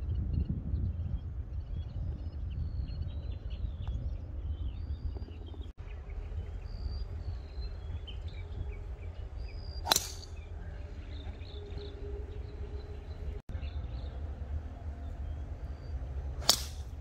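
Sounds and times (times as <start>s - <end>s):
small birds chirping: 0.0s - 17.0s
wind rumble on microphone: 0.0s - 17.0s
golf club striking ball: 9.8s - 10.4s, 16.4s - 17.0s.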